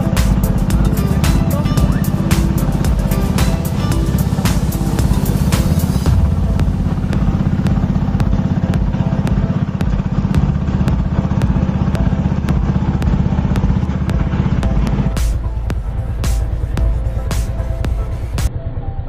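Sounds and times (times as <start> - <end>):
engine clatter: 0.0 - 19.0
motorboat engine droning: 0.0 - 19.0.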